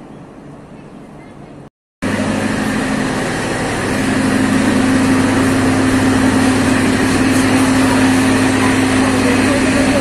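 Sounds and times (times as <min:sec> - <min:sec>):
diesel generator humming: 0:02.0 - 0:10.0.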